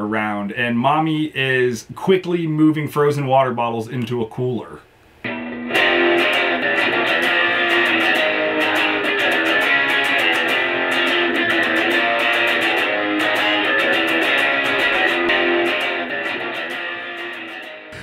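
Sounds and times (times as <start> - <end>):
electric guitar strummed fast: 5.3 - 18.0.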